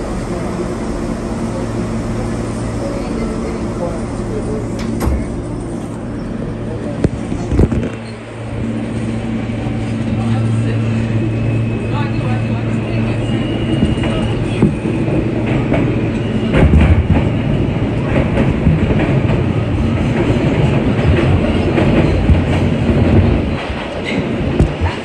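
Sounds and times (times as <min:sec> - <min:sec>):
subway train rumble: 0:00.0 - 0:25.0
wheels clacking over rail joints: 0:18.0 - 0:25.0.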